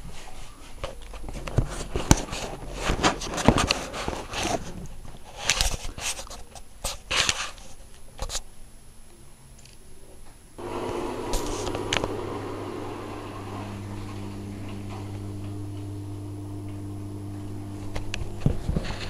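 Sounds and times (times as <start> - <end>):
washing machine drum swishing: 10.6 - 19.0.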